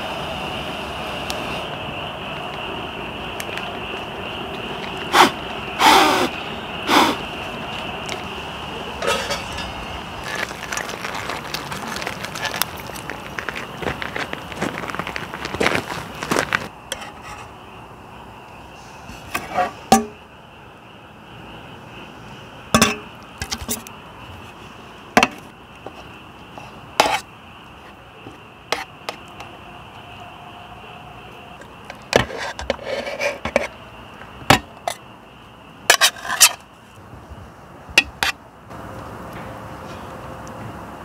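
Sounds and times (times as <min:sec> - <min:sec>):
cutlery clinking on metal plate: 0:09.0 - 0:09.7
cutlery scraping metal: 0:09.0 - 0:09.8.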